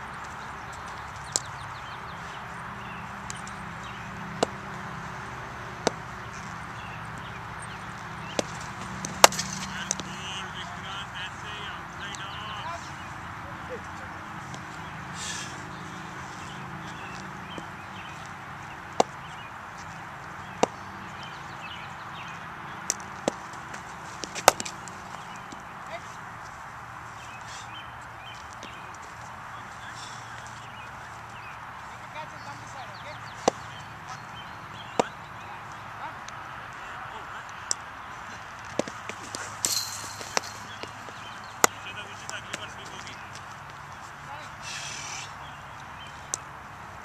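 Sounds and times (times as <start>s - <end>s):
steady outdoor hiss: 0.0s - 47.0s
cricket bat tapping: 3.2s - 4.7s, 5.8s - 6.0s, 18.9s - 19.2s, 22.8s - 25.7s, 33.3s - 33.8s, 34.8s - 35.2s, 38.6s - 43.2s.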